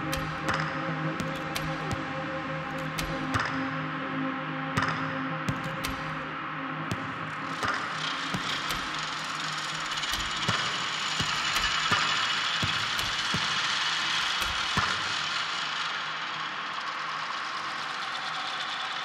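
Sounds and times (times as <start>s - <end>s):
sharp electronic clicks: 0.0s - 2.0s, 2.7s - 3.6s, 5.5s - 6.3s.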